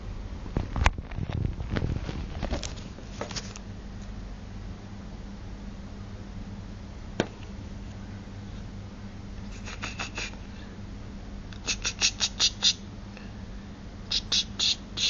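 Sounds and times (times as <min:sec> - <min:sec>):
low steady hum: 0:00.0 - 0:15.0
squeaky lip kissing sounds: 0:09.5 - 0:10.4, 0:11.6 - 0:12.8, 0:14.1 - 0:15.0.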